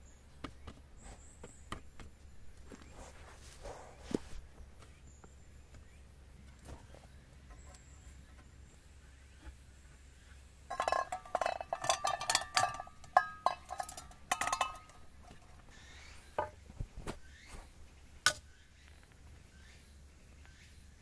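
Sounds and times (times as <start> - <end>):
metal cookware clinking: 10.7 - 15.5.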